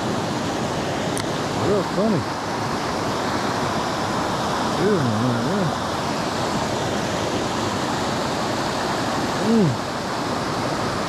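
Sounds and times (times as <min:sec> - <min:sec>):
creek water rushing over rocks: 0:00.0 - 0:11.0
man humming: 0:04.8 - 0:05.8, 0:09.4 - 0:09.8.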